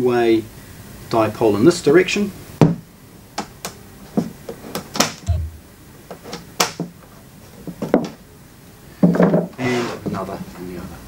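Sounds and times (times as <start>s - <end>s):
dull thump: 5.3s - 5.6s.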